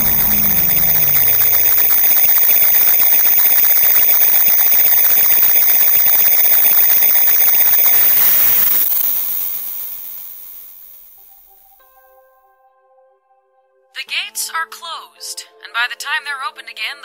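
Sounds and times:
harsh electronic static crackling: 0:00.0 - 0:11.8
high-pitched whining tones: 0:00.0 - 0:11.8.

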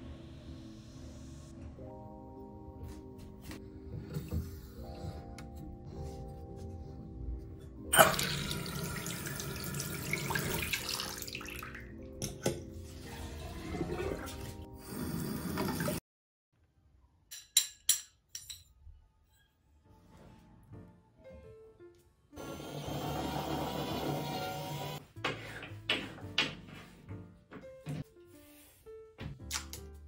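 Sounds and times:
background music: 0:00.0 - 0:16.0, 0:18.5 - 0:30.0
faucet water running into sink: 0:08.0 - 0:16.0.

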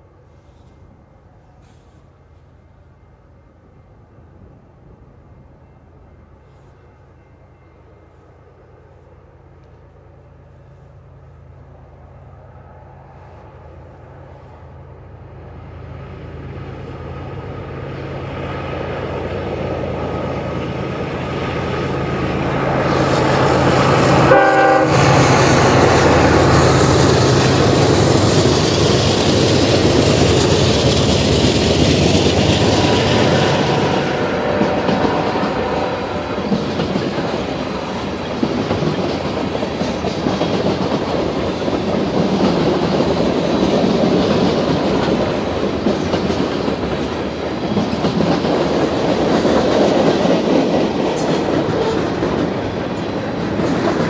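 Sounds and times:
diesel locomotive engine drone: 0:00.0 - 0:54.0
freight cars clickety-clack: 0:19.2 - 0:54.0.

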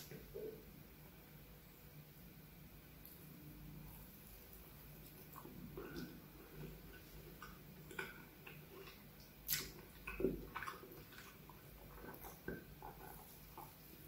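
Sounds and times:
wet chewing clicks and smacks: 0:04.9 - 0:14.0.

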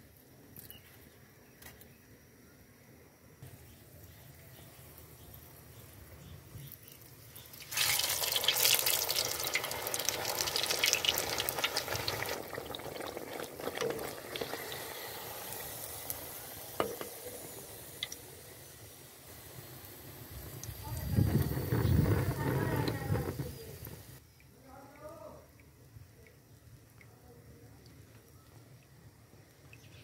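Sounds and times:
hot oil sizzling: 0:03.4 - 0:24.2.

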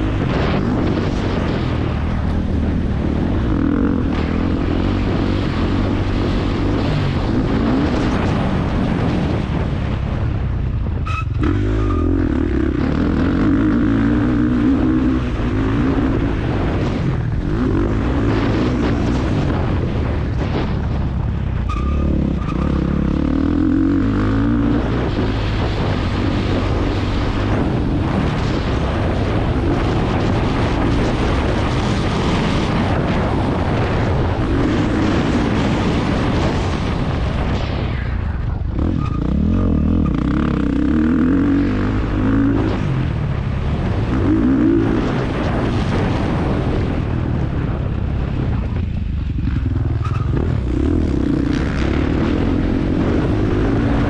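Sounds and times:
motocross engine revving: 0:11.2 - 0:20.6, 0:21.8 - 0:28.2, 0:38.7 - 0:43.1, 0:43.9 - 0:46.7.

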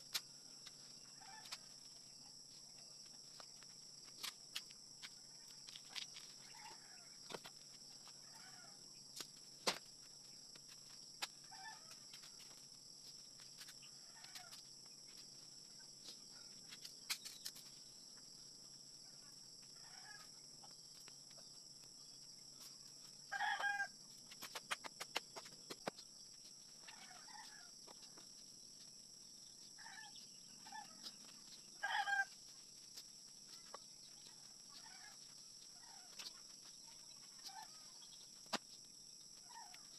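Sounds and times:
rooster crowing: 0:23.3 - 0:23.9, 0:31.8 - 0:32.3.

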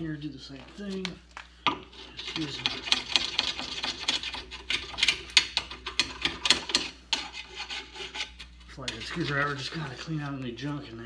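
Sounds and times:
screwdriver scraping metal: 0:01.9 - 0:10.2.

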